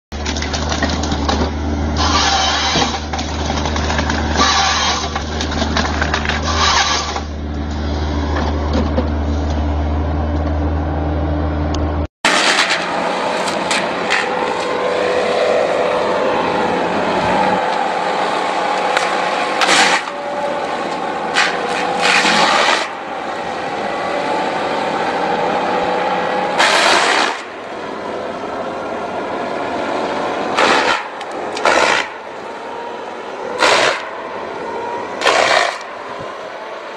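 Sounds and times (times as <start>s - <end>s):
wood grinding and chipping: 0.1s - 9.7s, 18.7s - 23.0s.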